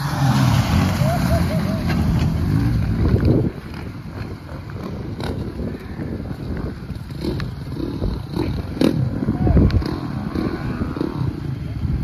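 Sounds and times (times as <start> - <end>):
diesel engine pulling through mud: 0.0 - 5.4
wind on microphone: 2.0 - 12.0.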